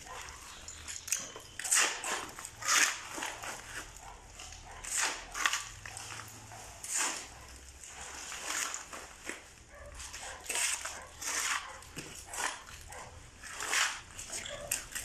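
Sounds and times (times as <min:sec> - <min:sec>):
shovels scraping concrete: 0:00.0 - 0:15.0.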